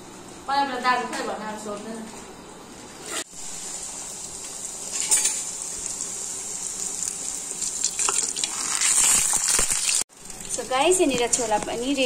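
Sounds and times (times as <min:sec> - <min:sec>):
dough deep-frying in hot oil: 0:03.0 - 0:12.0
oil crackling: 0:05.8 - 0:12.0.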